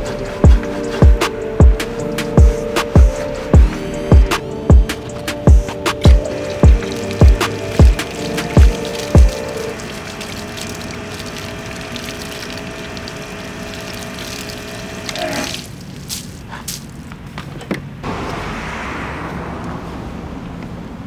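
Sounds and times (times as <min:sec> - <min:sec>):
water spraying and splashing: 0:04.3 - 0:17.1.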